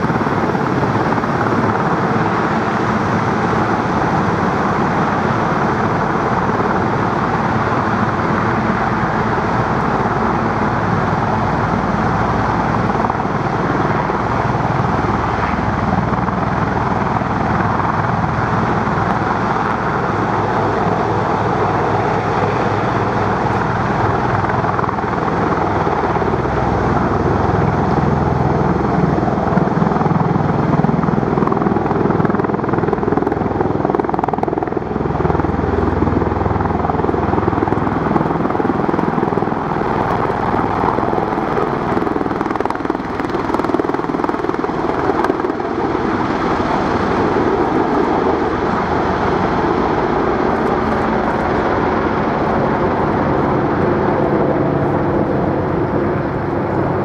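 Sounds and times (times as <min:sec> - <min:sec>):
helicopter rotors beating: 0:00.0 - 0:57.0.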